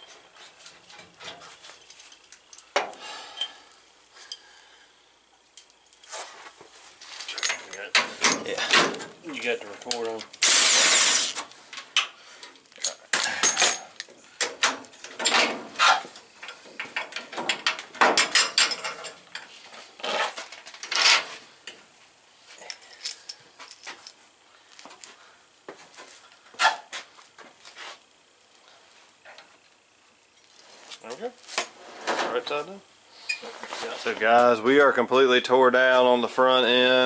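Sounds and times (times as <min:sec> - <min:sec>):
metal parts and tools clanking: 0:00.0 - 0:03.6, 0:07.0 - 0:09.0, 0:12.7 - 0:21.4, 0:22.6 - 0:24.2.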